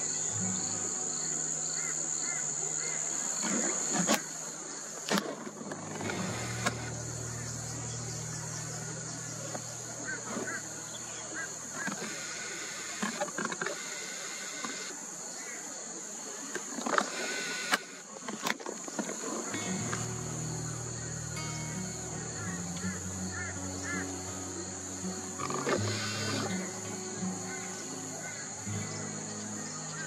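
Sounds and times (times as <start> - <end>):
insects buzzing: 0.0 - 30.0
vehicle engine drone: 5.7 - 12.3, 19.5 - 29.7
sharp clicks: 17.0 - 18.6.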